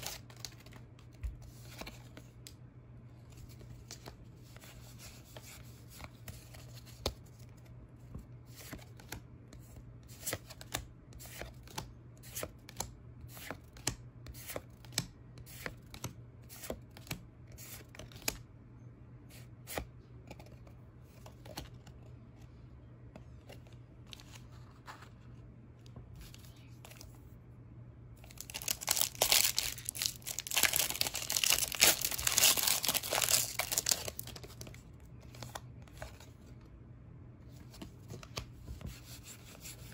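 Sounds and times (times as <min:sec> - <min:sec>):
foil pack tearing and crinkling: 0:28.4 - 0:34.4.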